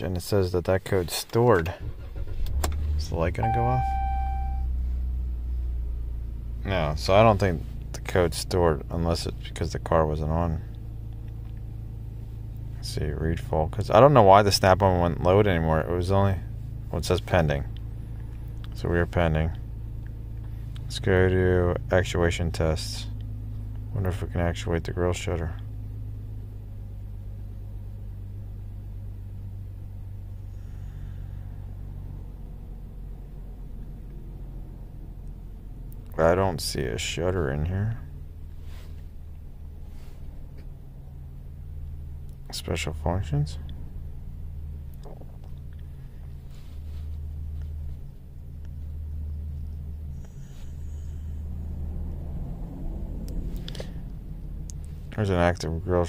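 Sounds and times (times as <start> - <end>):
car engine idling: 0.0 - 56.0
higher hum: 43.6 - 55.3.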